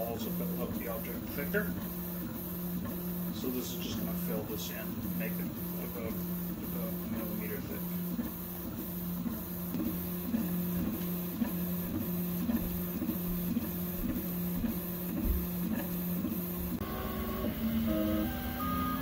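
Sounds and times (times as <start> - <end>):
printer stepper motors whining: 0.0 - 19.0.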